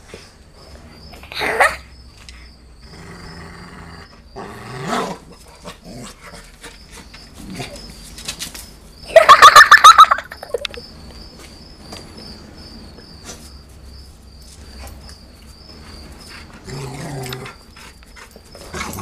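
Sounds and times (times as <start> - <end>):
dogs growling: 2.8 - 8.0, 15.9 - 19.0.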